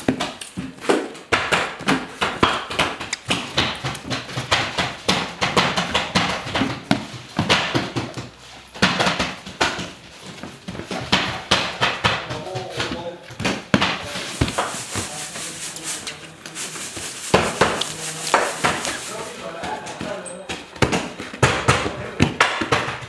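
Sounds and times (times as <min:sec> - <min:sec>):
fast knocks and slaps: 0:00.0 - 0:23.0.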